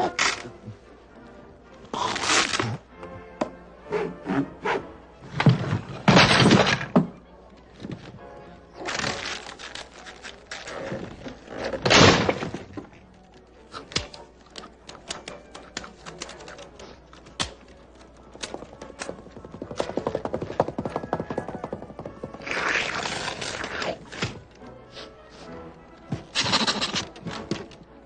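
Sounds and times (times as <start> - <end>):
metal being chewed and crunched: 8.8 - 19.2, 22.4 - 24.4, 26.2 - 27.8.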